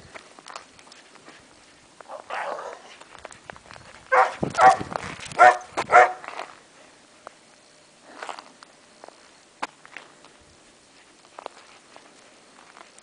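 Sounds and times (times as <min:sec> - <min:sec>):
dog barking: 0:04.1 - 0:06.3.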